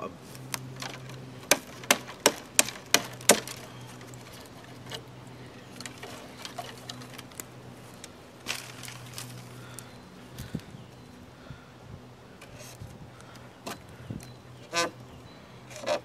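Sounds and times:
knife chopping a branch: 0.4 - 5.1
light ticks and rustling: 3.4 - 11.0.

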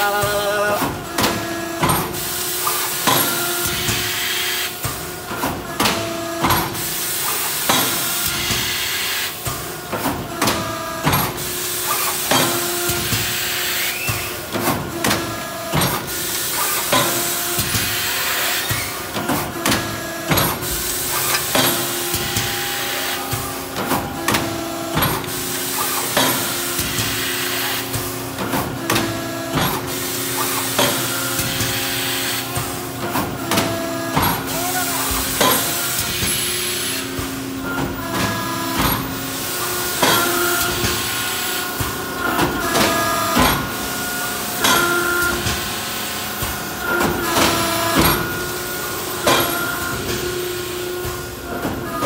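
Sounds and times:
machine press clacks and knocks: 0.2 - 4.1, 14.1 - 22.6, 23.2 - 27.2.

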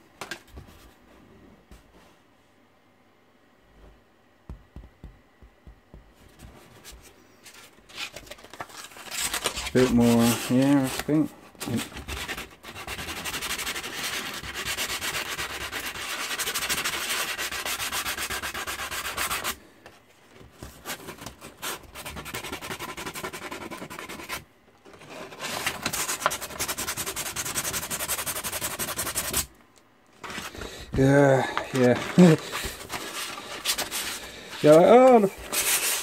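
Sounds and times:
sandpaper rubbing on canvas: 9.7 - 11.0, 12.1 - 19.6, 21.5 - 24.4, 25.4 - 29.5, 31.7 - 36.0.

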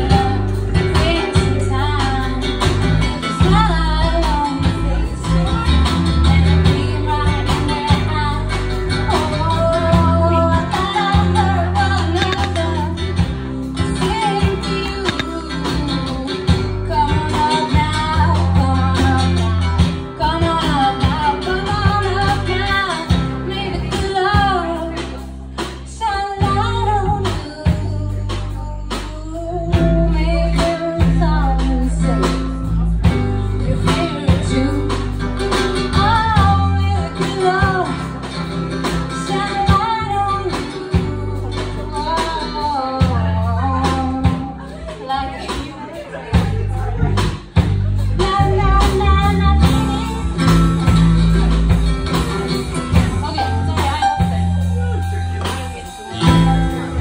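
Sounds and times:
woman singing: 0.0 - 51.8, 52.9 - 57.0
deep bass notes: 46.3 - 57.0.

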